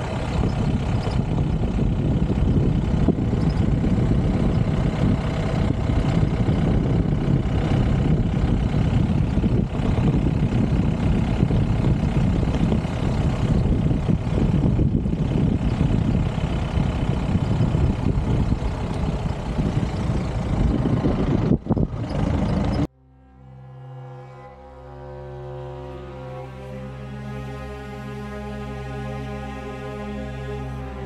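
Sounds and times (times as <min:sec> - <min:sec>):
vehicle engine rumble: 0:00.0 - 0:31.0
music: 0:22.9 - 0:31.0.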